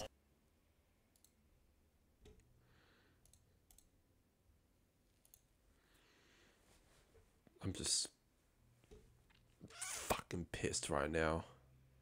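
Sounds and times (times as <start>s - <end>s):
faint mouse clicks: 1.1s - 1.4s, 3.2s - 3.9s, 5.2s - 5.5s.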